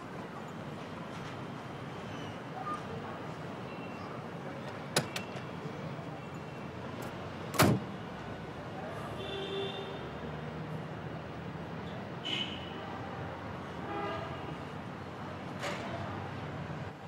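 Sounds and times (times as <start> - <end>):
car door latch click: 7.5 - 7.8
car door shutting thud: 7.5 - 7.9.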